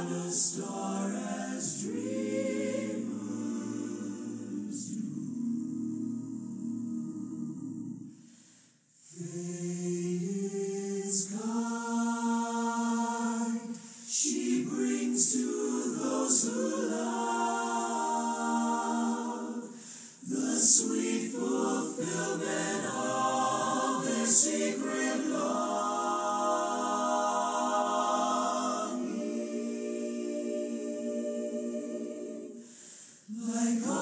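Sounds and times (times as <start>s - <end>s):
choir singing slow held chords: 0.0s - 34.0s.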